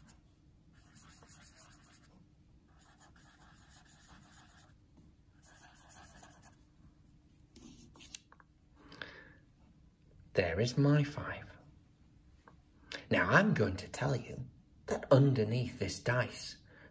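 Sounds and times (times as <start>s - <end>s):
pen scratching on paper: 0.0s - 2.1s, 2.7s - 4.8s, 5.4s - 6.6s.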